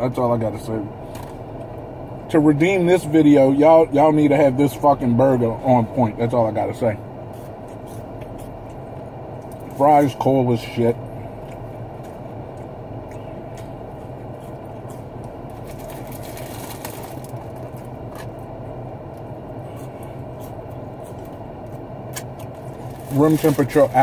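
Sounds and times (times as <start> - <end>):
car engine idling: 0.0 - 24.0
food wrapper rustling: 15.5 - 18.3, 22.5 - 24.0.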